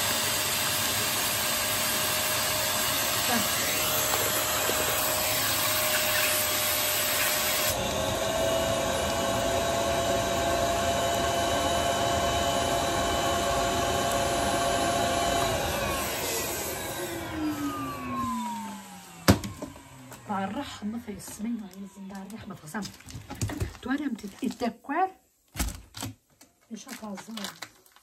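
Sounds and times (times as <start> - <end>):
vacuum cleaner running: 0.0 - 23.8.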